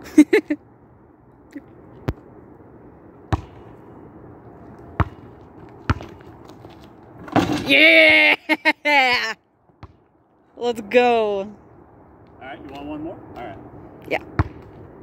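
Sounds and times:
basketball bouncing on asphalt: 3.2 - 3.8, 4.6 - 7.6, 9.7 - 10.2, 14.2 - 15.0.

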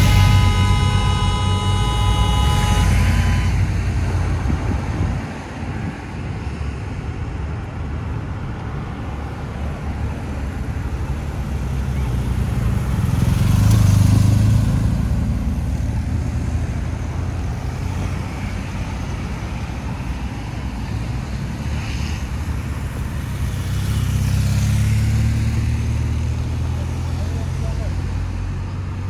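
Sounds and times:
cars passing on road: 0.0 - 29.0.

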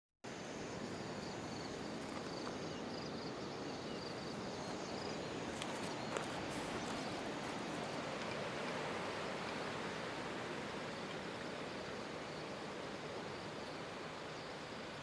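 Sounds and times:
insect chirping in high trills: 0.3 - 15.0
light clicks and rustles: 5.5 - 8.8.

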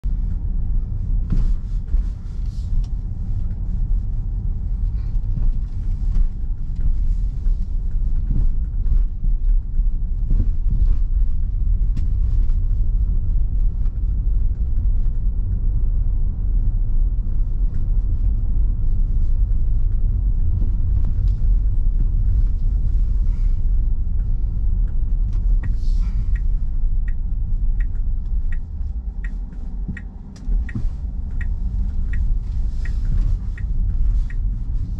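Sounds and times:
car engine and tyre rumble: 0.0 - 34.9
turn signal ticking: 12.8 - 34.9.

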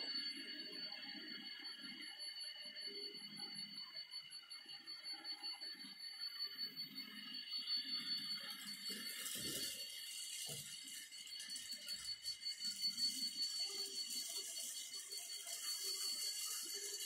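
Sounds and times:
model train wheels rattling: 13.4 - 17.0.

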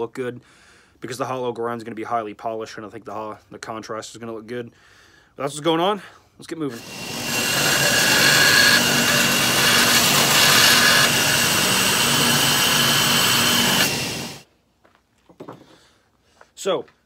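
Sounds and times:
belt grinder grinding metal: 6.7 - 14.4.

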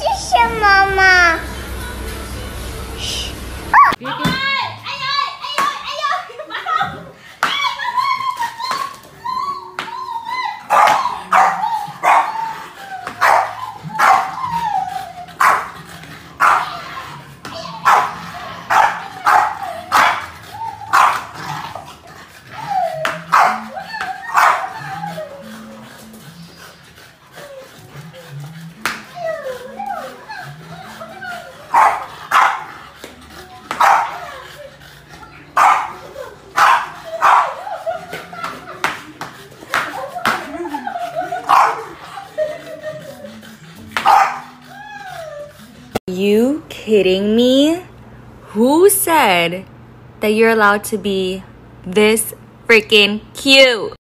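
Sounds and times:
dog barking: 10.7 - 12.3, 13.2 - 14.4, 16.4 - 16.7, 17.8 - 20.2, 20.9 - 21.4, 23.3 - 23.6, 24.3 - 24.7, 31.7 - 32.7, 33.7 - 34.2, 35.6 - 36.0, 36.6 - 37.6, 41.4 - 41.9, 44.0 - 44.5
small dog barking: 31.7 - 32.6, 35.6 - 35.9, 36.6 - 37.5, 41.5 - 41.8, 44.0 - 44.5.

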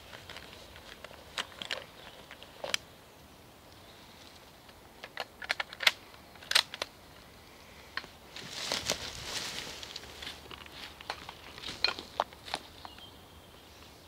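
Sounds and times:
gear clicks and snaps: 0.0 - 2.8, 4.6 - 7.0.

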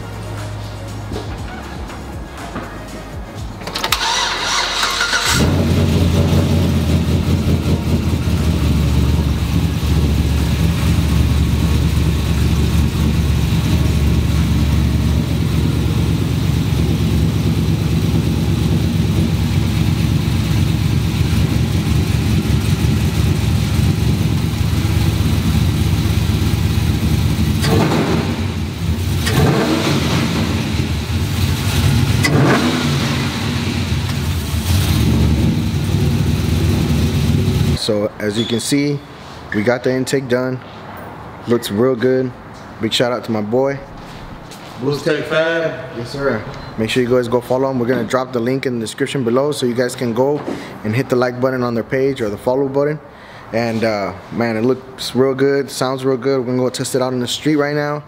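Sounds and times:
truck engine idling: 0.0 - 27.7
engine starter cranking: 3.6 - 6.0
engine revving: 3.7 - 37.8.

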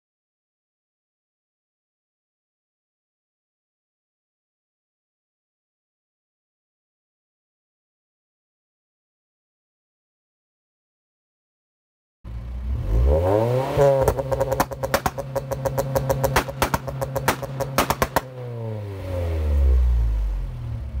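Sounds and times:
car engine revving: 12.3 - 21.0
exhaust cracks: 12.9 - 18.7.

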